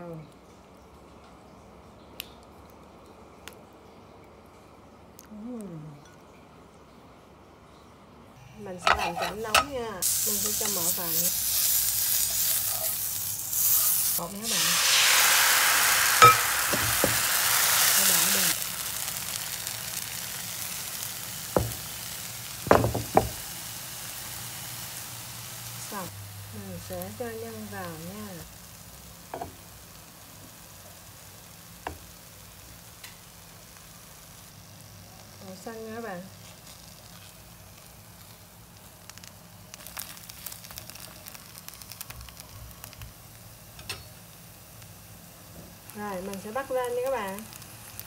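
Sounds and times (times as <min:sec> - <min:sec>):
batter sizzling in a pan: 0:08.7 - 0:48.0
crepe frying in oil: 0:09.8 - 0:48.0
knocks against a pan: 0:22.7 - 0:23.4
crackles and pops: 0:36.4 - 0:43.6, 0:45.8 - 0:48.0.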